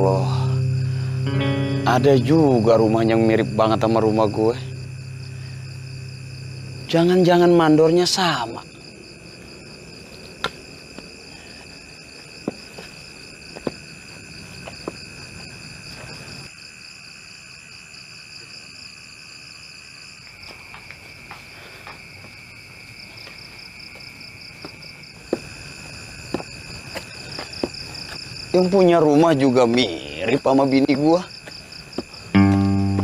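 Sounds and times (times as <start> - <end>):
crickets chirping: 0.0 - 33.0.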